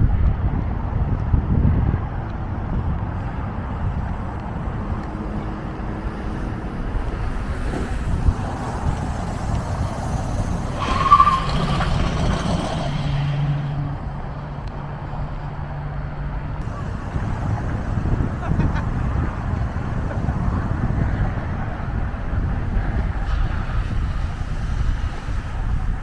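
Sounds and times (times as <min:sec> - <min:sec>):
truck rolling: 0:03.3 - 0:26.0
tyre screech: 0:09.2 - 0:14.0
truck engine idling: 0:14.0 - 0:22.2.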